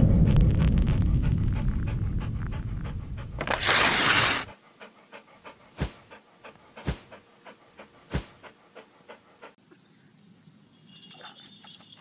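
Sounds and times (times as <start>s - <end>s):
dog panting: 0.9s - 3.4s, 4.2s - 9.6s.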